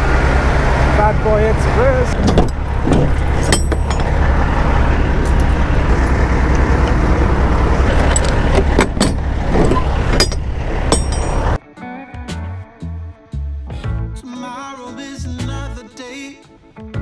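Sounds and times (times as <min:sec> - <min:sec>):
diesel truck idling: 0:00.0 - 0:11.6
metallic clicks of door latches: 0:02.2 - 0:04.1.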